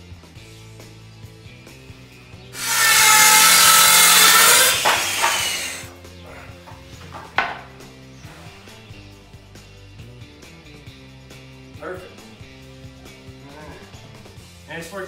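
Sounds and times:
power saw cutting wood: 2.6s - 5.9s
wood piece knocking on floor: 7.1s - 7.6s.

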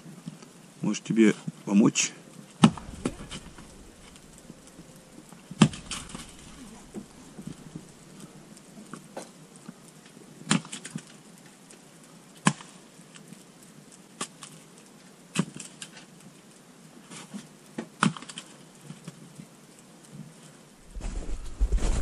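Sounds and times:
axe chopping firewood: 2.6s - 5.0s, 5.6s - 7.7s
wood knocking: 2.6s - 8.4s.

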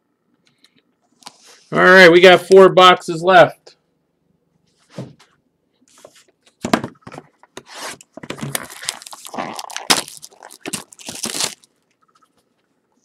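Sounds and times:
cardboard scraping and tearing: 7.6s - 11.7s
wrapping crinkling and rustling: 7.6s - 12.6s.

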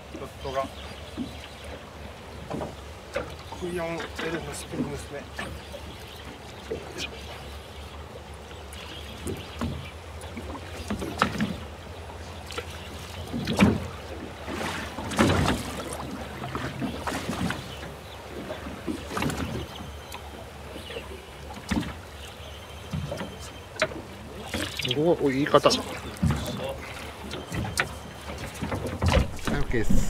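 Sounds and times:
steady low boat drone: 0.0s - 30.0s
knocks and bumps on boat: 2.4s - 5.7s, 9.1s - 11.8s, 12.5s - 20.0s, 21.5s - 22.1s, 22.8s - 24.8s, 25.5s - 30.0s.

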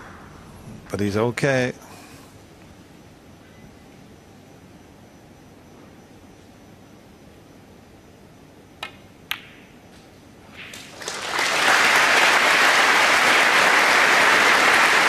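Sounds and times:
snooker balls clicking together: 8.8s - 9.7s
crowd applause: 10.7s - 15.0s.

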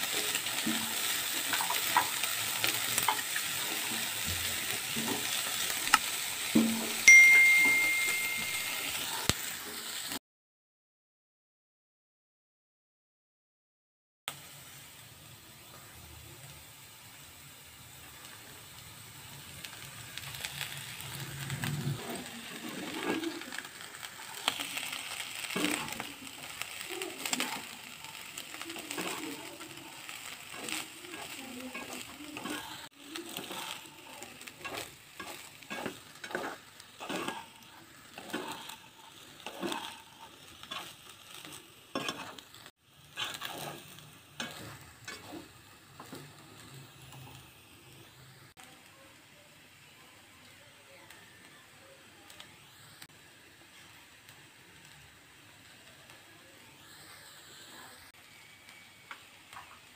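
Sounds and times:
spatula stirring and tossing: 0.0s - 9.8s, 19.4s - 47.4s
rice sizzling in a pan: 0.0s - 10.2s, 14.3s - 59.9s.

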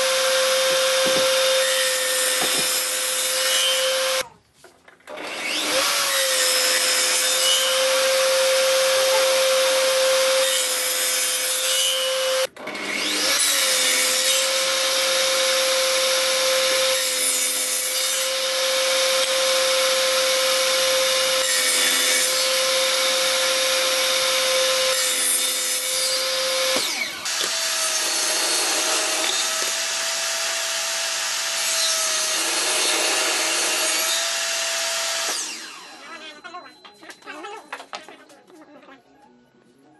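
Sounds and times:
table saw blade whine: 11.6s - 36.2s.

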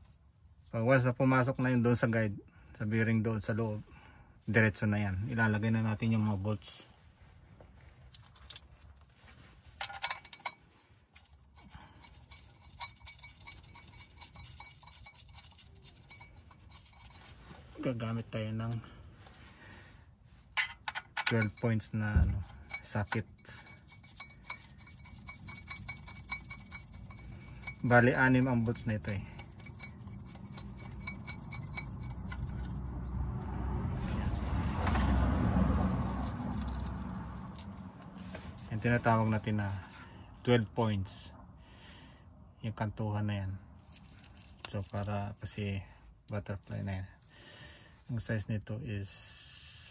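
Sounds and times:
low rumble: 32.0s - 38.9s.

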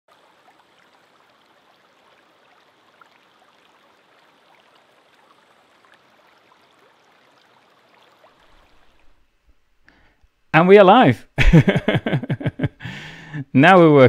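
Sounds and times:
stream running water: 0.1s - 10.5s.

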